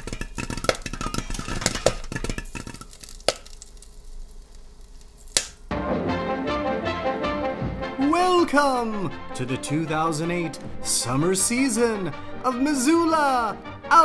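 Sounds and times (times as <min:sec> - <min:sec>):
popcorn popping: 0:00.0 - 0:05.7
music with brass: 0:05.7 - 0:08.1.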